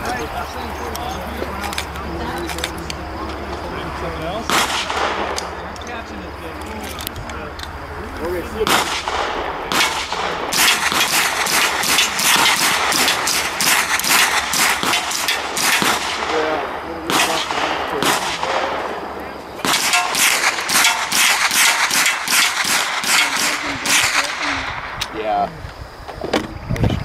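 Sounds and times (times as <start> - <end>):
machine-gun fire: 4.5 - 5.4, 8.6 - 24.9.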